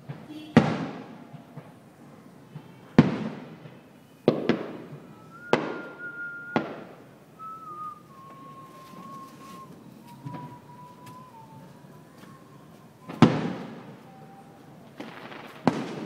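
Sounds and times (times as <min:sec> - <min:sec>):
distant firework bursts echoing: 0:00.0 - 0:08.6, 0:13.0 - 0:16.0
high firework whistle: 0:02.6 - 0:16.0.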